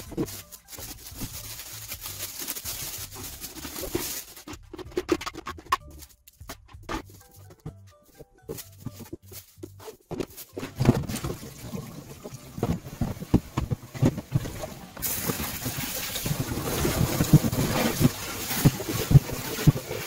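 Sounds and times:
scrubbing plastic in a sink: 0:00.0 - 0:07.7, 0:08.5 - 0:20.0
plastic containers knocking: 0:03.6 - 0:07.8, 0:08.5 - 0:15.6
tap water running: 0:10.8 - 0:20.0.

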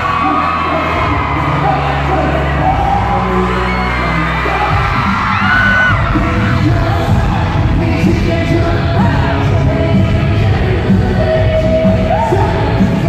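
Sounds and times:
fans yelling: 0:00.0 - 0:09.4
pop song with singing and heavy bass: 0:00.0 - 0:13.0.

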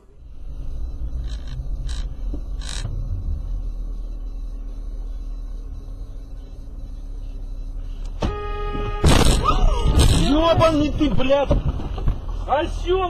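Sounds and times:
car engine and tyres on snow: 0:00.0 - 0:13.0
car horn blast: 0:08.1 - 0:10.8.

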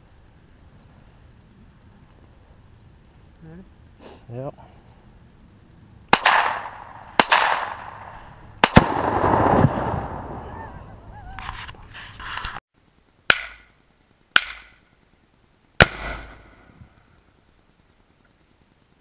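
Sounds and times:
gunshot cracks: 0:06.1 - 0:10.4, 0:15.8 - 0:16.6
explosion boom echoing: 0:06.2 - 0:11.1.

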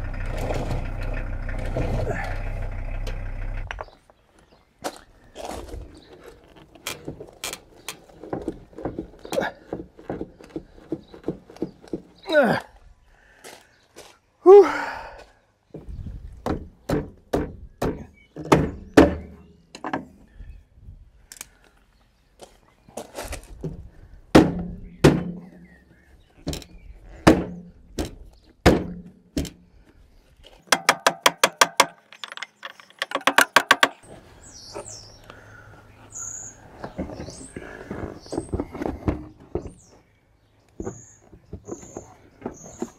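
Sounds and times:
hollow thunks on plastic bumper: 0:23.6 - 0:25.5, 0:27.2 - 0:29.6
rattling clicks: 0:30.8 - 0:34.0.

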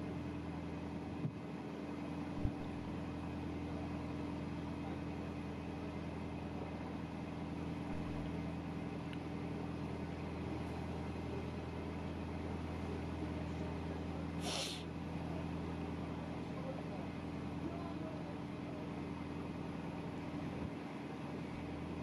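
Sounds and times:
boat engine humming: 0:00.0 - 0:22.0
brief hiss: 0:14.4 - 0:14.9.

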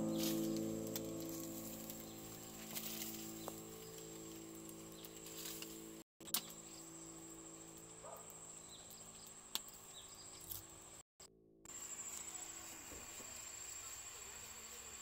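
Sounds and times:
insects chirring: 0:11.7 - 0:15.0.

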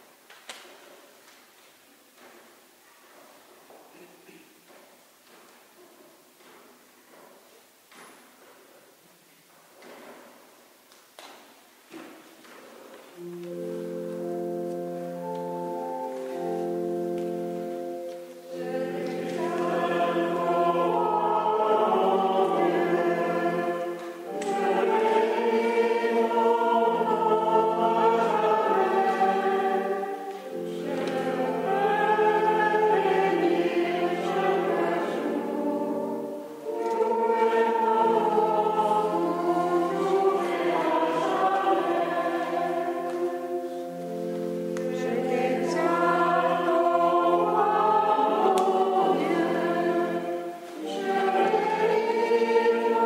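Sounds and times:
held accompaniment chords: 0:13.2 - 0:53.0
voices singing a hymn: 0:13.2 - 0:53.0.

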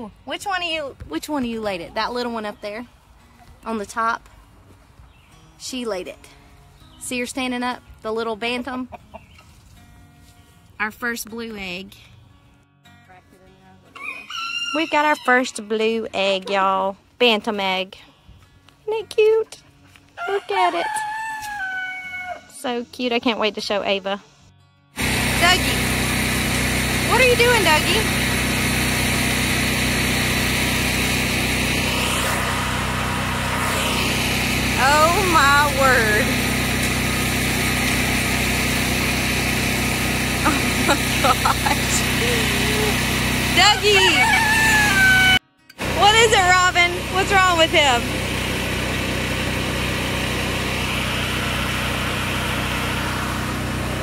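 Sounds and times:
generator engine humming: 0:25.0 - 0:54.0.

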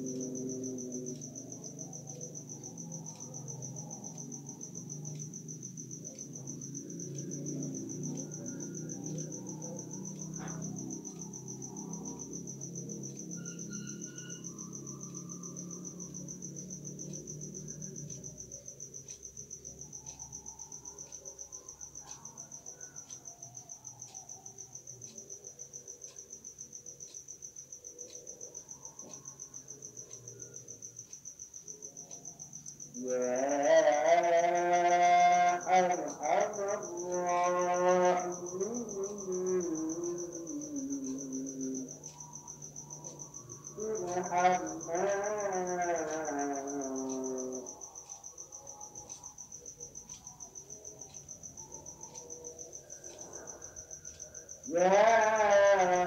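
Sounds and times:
crickets chirping: 0:00.0 - 0:56.0
man chanting: 0:33.1 - 0:41.9, 0:43.8 - 0:47.7.

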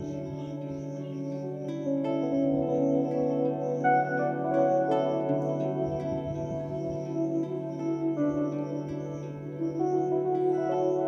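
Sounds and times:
calm new-age music: 0:00.0 - 0:11.0.

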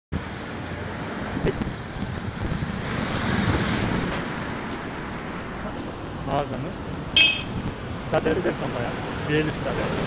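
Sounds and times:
traffic: 0:00.1 - 0:10.0
wind on microphone: 0:01.2 - 0:05.0, 0:06.9 - 0:08.1.

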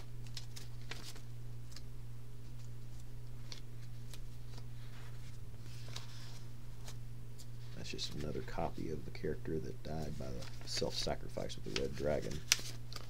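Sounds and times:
steady low hum: 0:00.0 - 0:13.0
paper rustle: 0:00.2 - 0:01.8, 0:02.4 - 0:08.7, 0:09.9 - 0:13.0
paper sheets ticking: 0:09.9 - 0:13.0.

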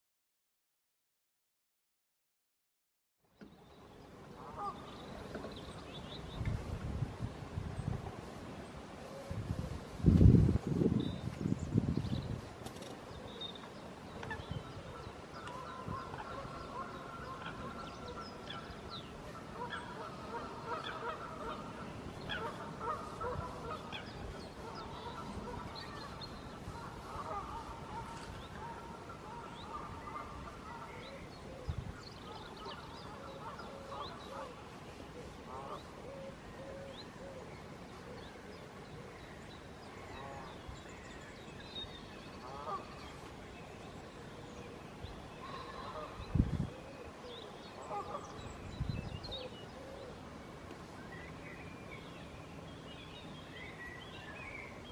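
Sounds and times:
steady background hiss: 0:03.4 - 0:54.9
birds chirping: 0:10.7 - 0:54.9
honking bird calls: 0:14.2 - 0:31.0, 0:42.4 - 0:42.9.

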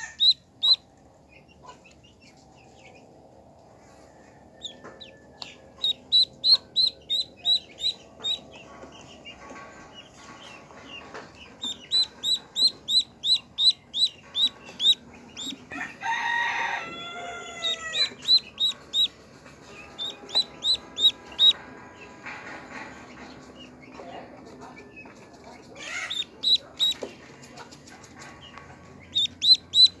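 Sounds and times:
duckling peeping: 0:00.0 - 0:03.0, 0:04.6 - 0:15.8, 0:17.4 - 0:21.6, 0:24.7 - 0:27.2, 0:27.9 - 0:30.0.

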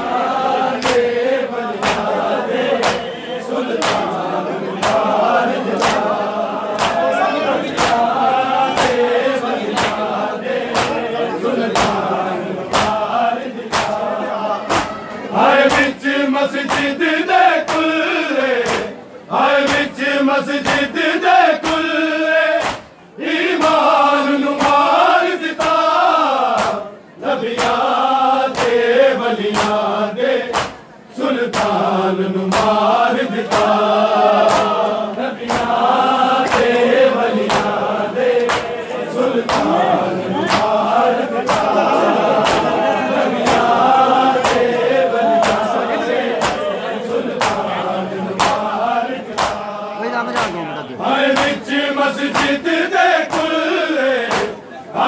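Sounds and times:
men chanting in unison: 0:00.0 - 0:55.0
hands slapping chests: 0:00.8 - 0:01.2, 0:01.8 - 0:02.2, 0:02.8 - 0:03.1, 0:03.7 - 0:04.2, 0:04.8 - 0:06.1, 0:06.8 - 0:07.1, 0:07.7 - 0:08.1, 0:09.7 - 0:10.1, 0:10.7 - 0:11.0, 0:11.7 - 0:12.1, 0:12.7 - 0:13.0, 0:13.7 - 0:14.0, 0:14.7 - 0:15.0, 0:16.6 - 0:17.0, 0:17.6 - 0:17.9, 0:18.6 - 0:19.0, 0:22.6 - 0:22.9, 0:26.5 - 0:26.8, 0:28.5 - 0:28.8, 0:29.5 - 0:29.8, 0:30.5 - 0:30.9, 0:31.5 - 0:31.9, 0:32.5 - 0:32.8, 0:34.4 - 0:34.8, 0:35.4 - 0:35.8, 0:36.4 - 0:36.8, 0:37.4 - 0:37.8, 0:38.4 - 0:38.8, 0:39.4 - 0:39.8, 0:40.4 - 0:40.8, 0:41.4 - 0:41.7, 0:42.3 - 0:42.8, 0:44.4 - 0:44.7, 0:45.4 - 0:45.7, 0:46.4 - 0:46.7, 0:47.3 - 0:47.6, 0:48.4 - 0:48.7, 0:49.3 - 0:49.6, 0:50.3 - 0:50.6, 0:51.3 - 0:51.6, 0:52.3 - 0:52.6, 0:53.3 - 0:53.5, 0:54.3 - 0:54.6.

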